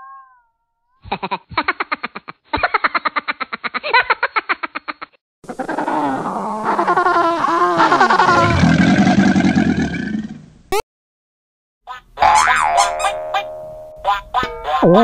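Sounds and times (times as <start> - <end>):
music: 13.0 - 15.0.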